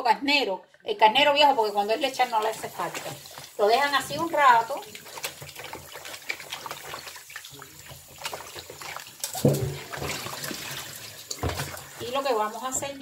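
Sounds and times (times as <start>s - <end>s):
water trickling in sink: 1.2s - 13.0s.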